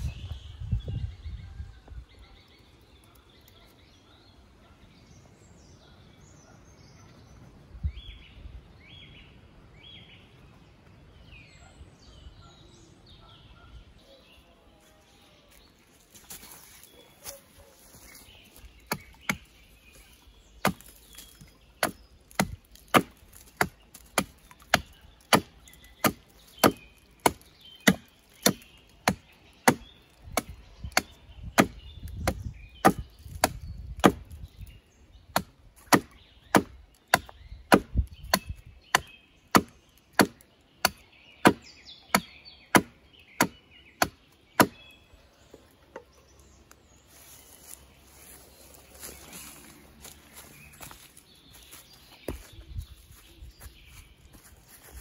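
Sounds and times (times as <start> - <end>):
axe chopping wood: 18.9 - 19.5, 20.6 - 34.4, 35.3 - 44.8.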